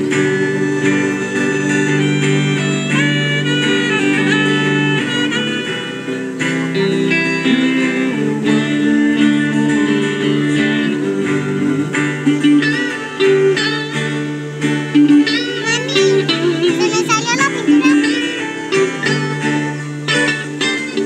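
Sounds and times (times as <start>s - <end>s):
guitar chords: 0.0s - 21.0s
saxophone and guitar melody: 0.0s - 21.0s
wavering high melody line: 15.5s - 19.8s.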